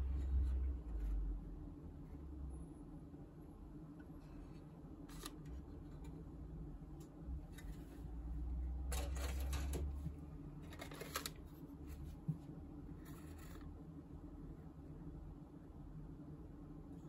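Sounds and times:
plastic parts rustling clatter: 8.9 - 10.0, 10.6 - 11.4.

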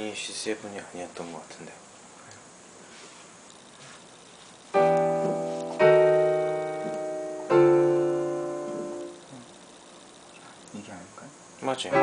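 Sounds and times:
digital piano chords: 4.7 - 10.7, 11.6 - 12.0.

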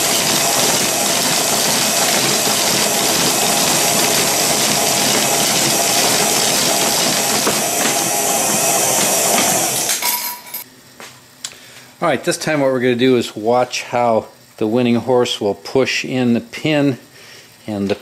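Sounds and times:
mechanical whirring clatter: 0.0 - 10.2.

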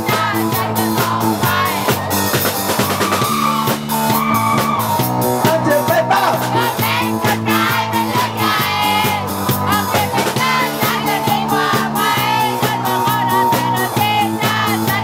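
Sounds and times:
drums: 0.0 - 15.0
rock music: 0.0 - 15.0
person singing: 9.7 - 15.0.

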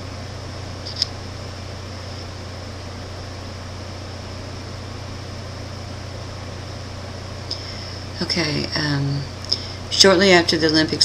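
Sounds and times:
constant hiss: 0.0 - 11.0
steady low hum: 0.0 - 11.0.

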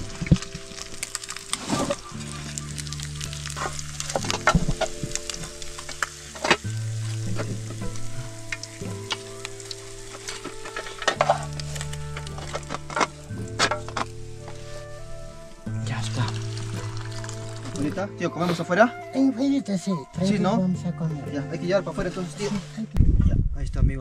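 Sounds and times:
fish sizzling in hot oil: 0.0 - 18.2
oil crackling and spitting: 0.0 - 18.6.

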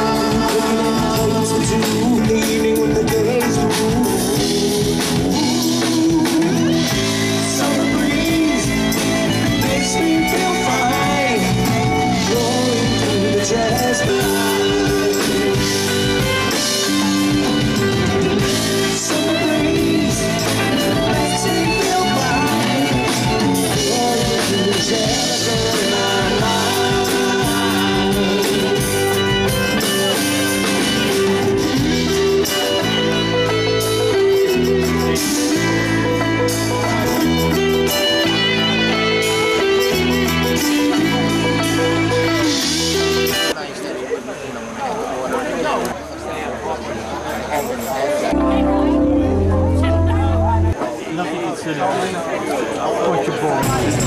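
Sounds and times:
man singing lead vocal: 0.0 - 30.0
live rock band playing: 0.0 - 43.7, 47.4 - 51.1, 53.4 - 54.0.

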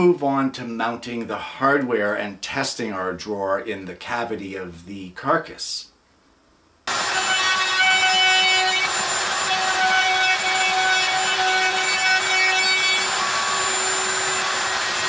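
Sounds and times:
wood router whining: 6.9 - 15.0.

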